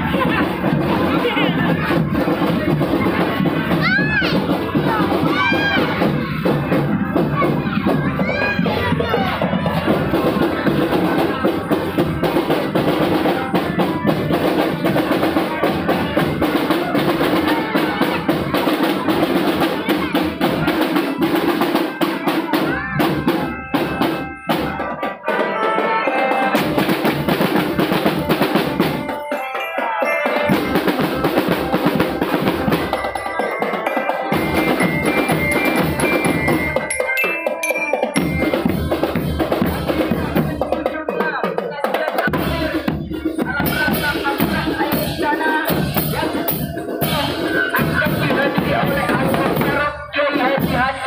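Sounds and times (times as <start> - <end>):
marching bells tune: 0.0 - 41.1, 42.4 - 50.9
snare drums: 0.0 - 51.0
bass drums: 38.2 - 40.8.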